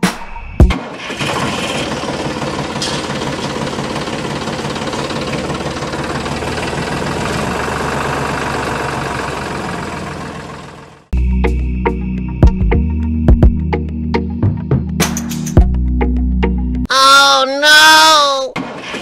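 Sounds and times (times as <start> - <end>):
tractor engine knocking rumble: 1.0 - 11.1.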